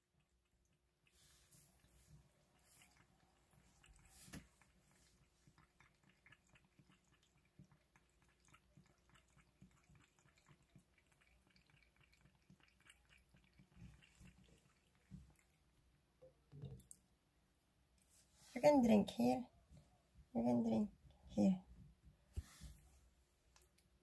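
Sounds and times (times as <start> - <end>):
cat lapping water: 0.0 - 17.1.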